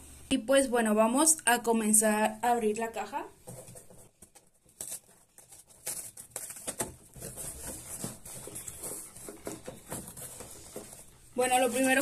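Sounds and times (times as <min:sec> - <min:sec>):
box and packing rustling open: 0:03.5 - 0:12.0.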